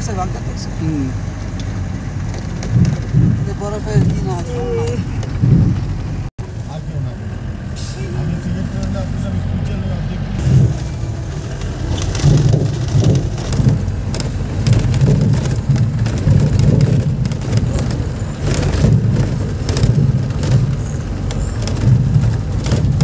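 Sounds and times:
car engine and road noise: 0.0 - 23.0
small knocks and rattles: 1.5 - 6.3, 10.4 - 23.0.

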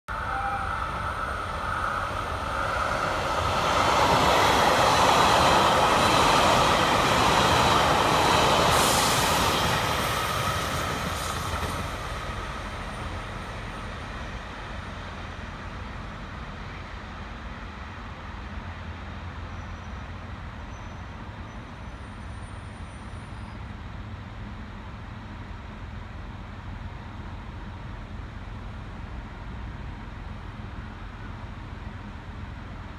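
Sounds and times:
electric train passing: 0.1 - 22.8.

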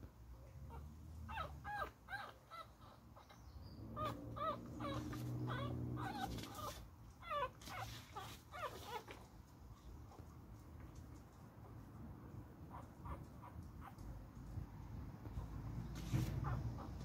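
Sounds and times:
puppy whimpering: 0.7 - 3.4, 4.0 - 9.2.

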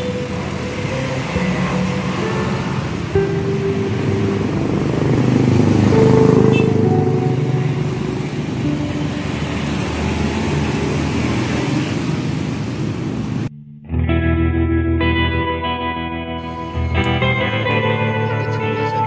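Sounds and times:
vehicle engines running: 0.0 - 13.5, 16.4 - 19.0
vehicle passing: 0.0 - 13.5.

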